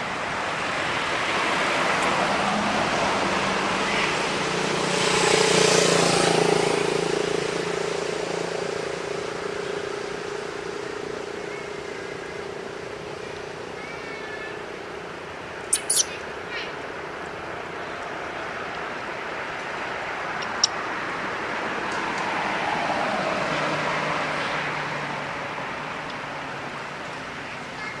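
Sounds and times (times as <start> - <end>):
traffic rumble: 0.0 - 28.0
baby monkey squeaking: 15.7 - 16.2.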